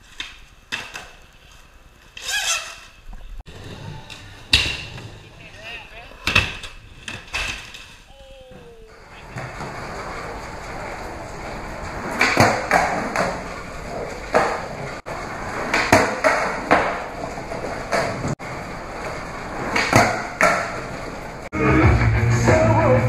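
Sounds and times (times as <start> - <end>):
skateboard wheels rolling on concrete: 0.0 - 23.0
skateboard clacking on ground: 4.0 - 18.4, 19.0 - 21.2.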